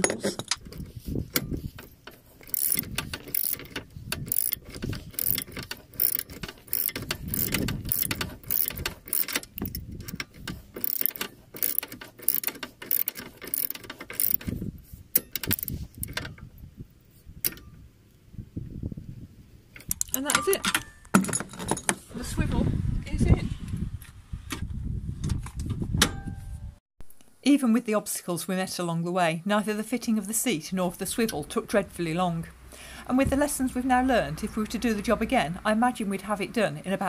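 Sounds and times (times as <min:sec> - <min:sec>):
ratchet wrench clicking: 0:00.6 - 0:14.5, 0:15.1 - 0:16.3.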